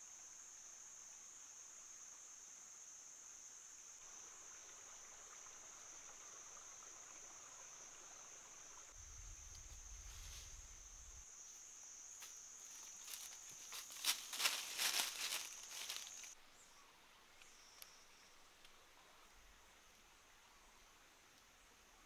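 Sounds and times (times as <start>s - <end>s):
insects droning: 0.0s - 22.0s
dry leaves crackling: 12.6s - 16.4s.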